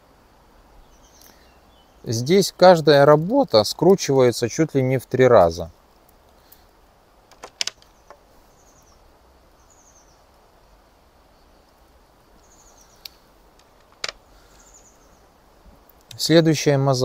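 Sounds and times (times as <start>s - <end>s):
faint high chirping trills: 0.8s - 2.7s, 7.8s - 13.4s, 14.2s - 16.8s.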